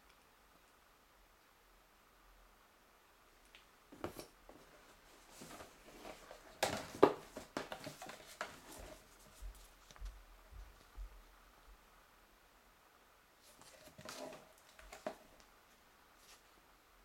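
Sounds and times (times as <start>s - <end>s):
paper and cardboard rustling: 4.0s - 10.0s, 13.4s - 15.3s.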